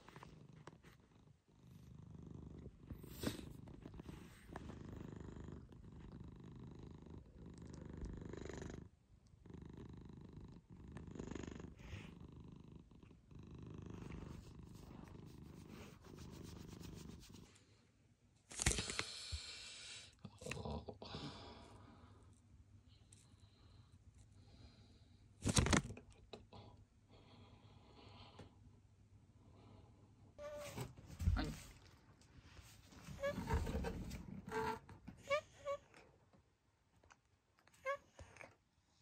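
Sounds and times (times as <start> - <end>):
cat purring: 0.0 - 17.5.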